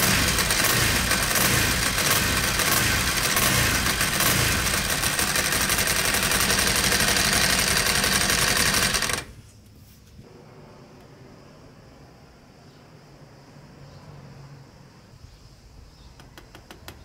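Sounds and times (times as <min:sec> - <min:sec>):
fine ticking clatter: 0:00.0 - 0:09.3
motorcycle engine running: 0:00.0 - 0:09.4.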